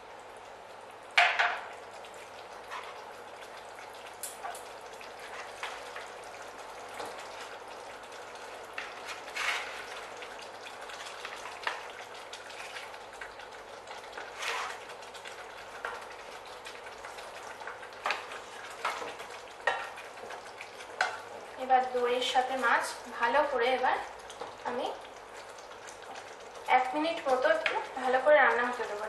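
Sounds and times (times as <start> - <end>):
gravy sizzling in a pan: 0.0 - 29.0
wooden spatula scraping and knocking: 8.8 - 9.9, 14.2 - 14.8.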